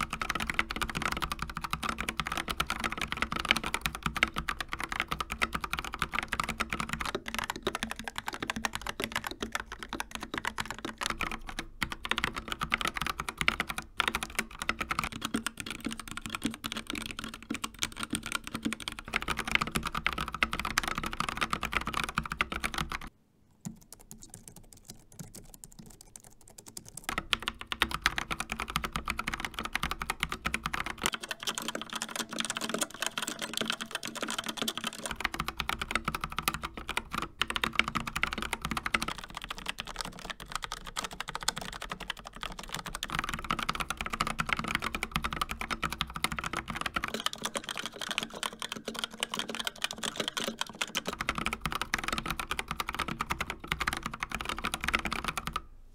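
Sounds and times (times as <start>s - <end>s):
typing on mechanical keyboard: 0.0s - 55.7s.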